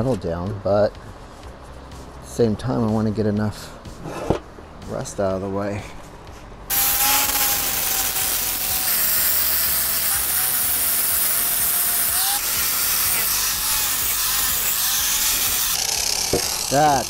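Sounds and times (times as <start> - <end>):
angle grinder grinding metal: 6.7 - 17.0.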